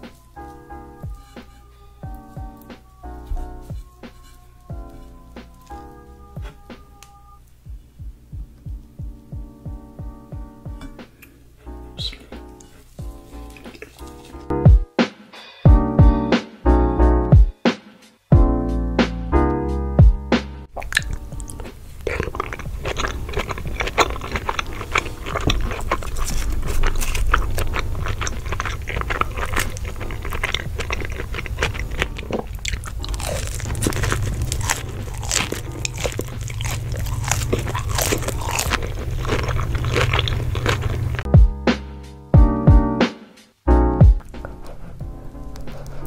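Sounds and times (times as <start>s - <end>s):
person crunching and chewing food: 12.0s - 14.5s, 20.8s - 41.3s.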